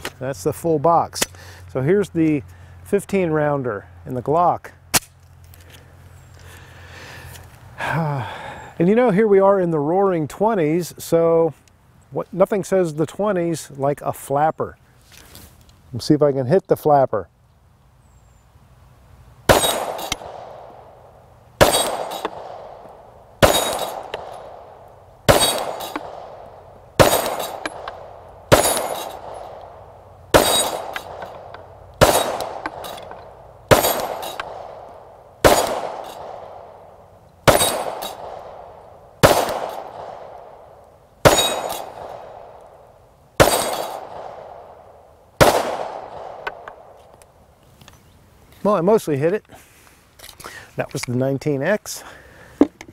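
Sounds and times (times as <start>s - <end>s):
steel target clanging: 19.5s - 20.3s, 21.6s - 22.4s, 23.4s - 24.4s, 25.3s - 26.1s, 27.0s - 29.6s, 30.3s - 34.6s, 37.5s - 38.3s, 41.3s - 42.1s, 43.4s - 44.1s
pistol shots: 19.5s - 21.0s, 21.6s - 36.8s, 37.4s - 42.6s, 43.4s - 44.8s, 45.4s - 46.9s.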